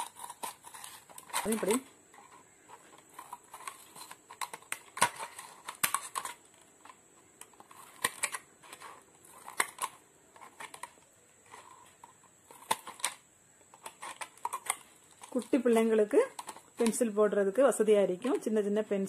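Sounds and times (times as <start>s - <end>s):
scissors snipping plastic: 0.0s - 1.8s, 2.7s - 11.0s, 16.2s - 17.0s.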